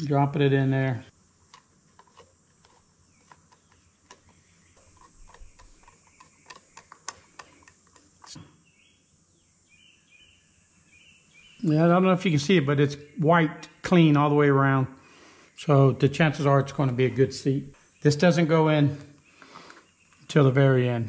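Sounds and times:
birds chirping: 0.0s - 21.0s
screwdriver ticking and clicking: 1.5s - 8.4s.

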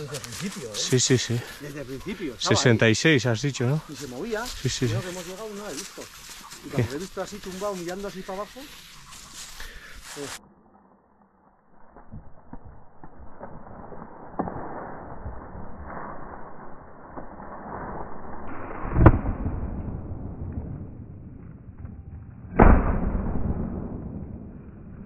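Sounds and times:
steady rustling background: 0.0s - 10.4s.

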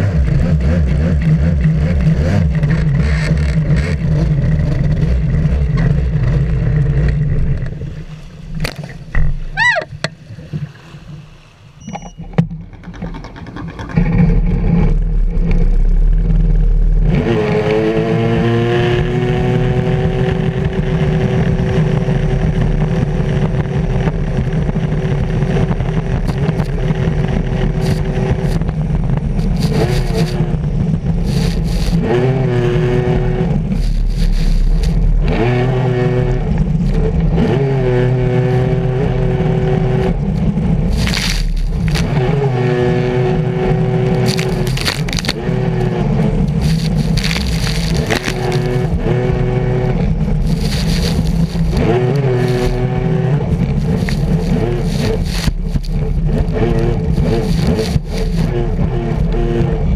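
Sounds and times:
jet ski engine whining: 25.0s - 37.4s, 38.1s - 59.9s.

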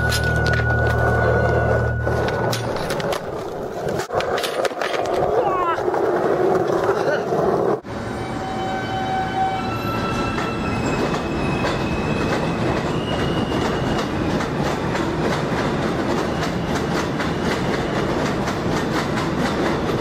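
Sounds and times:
train rumble: 0.0s - 4.2s, 5.5s - 20.0s
train wheels clacking over rail joints: 10.4s - 20.0s.

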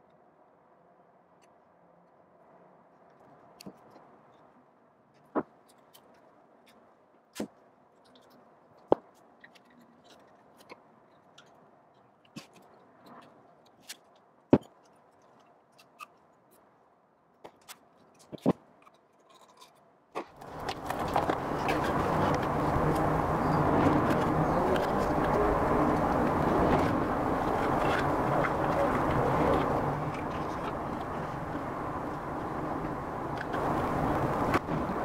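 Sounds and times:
tape rustling: 17.4s - 34.9s.

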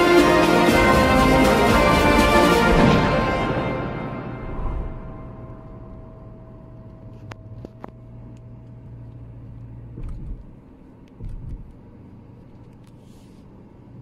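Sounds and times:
low thumps: 0.8s - 7.6s
car engine and road rumble: 5.1s - 14.0s.

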